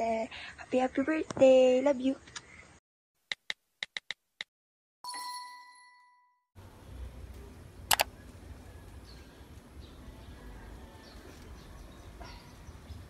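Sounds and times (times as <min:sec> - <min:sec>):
bell-like ding chime: 0:05.0 - 0:06.4
low outdoor rumble: 0:06.6 - 0:13.0
typing clicks: 0:07.9 - 0:08.1.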